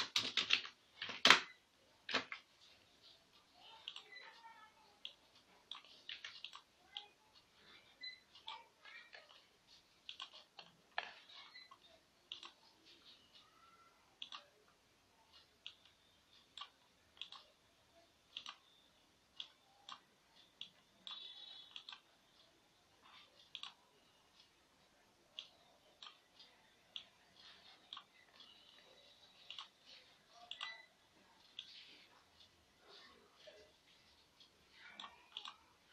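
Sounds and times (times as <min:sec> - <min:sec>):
computer mouse clicks: 0:10.0 - 0:12.6, 0:19.4 - 0:22.1, 0:29.4 - 0:29.8, 0:30.4 - 0:30.9, 0:34.7 - 0:35.6.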